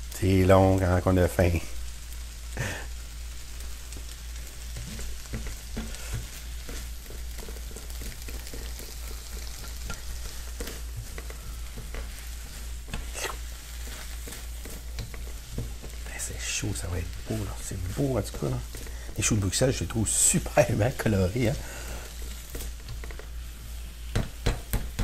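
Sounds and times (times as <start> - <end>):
vegetables sizzling in wok: 0.0 - 25.0
spatula scraping pan: 3.6 - 25.0.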